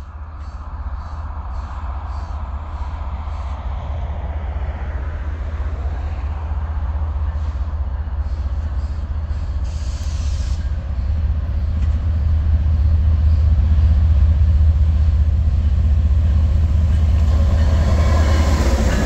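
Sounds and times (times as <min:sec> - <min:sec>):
train wheels rumbling on rails: 0:00.0 - 0:19.0
brief hiss: 0:09.7 - 0:10.7.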